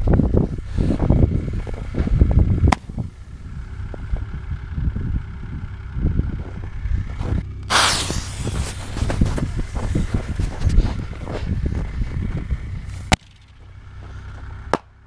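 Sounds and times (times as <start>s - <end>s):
wind buffeting microphone: 0.0s - 14.6s
sharp crack: 2.6s - 3.0s, 7.6s - 10.8s, 13.0s - 13.6s
firework hissing rush: 7.7s - 10.5s.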